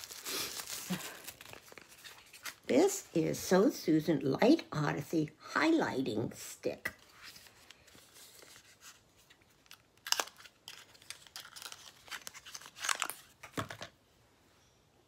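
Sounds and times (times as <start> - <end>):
packaging rustling and crinkling: 0.0 - 2.7, 7.0 - 14.0.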